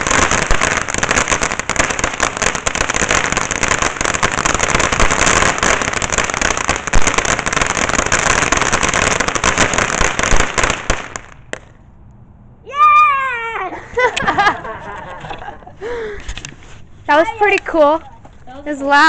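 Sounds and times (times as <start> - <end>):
firework crackling hiss: 0.0 - 11.7
high falling cry: 12.6 - 14.7.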